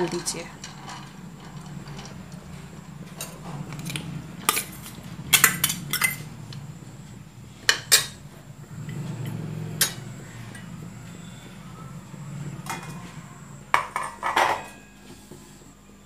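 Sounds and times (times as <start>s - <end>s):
steel ladle clinking metal: 3.2s - 6.2s.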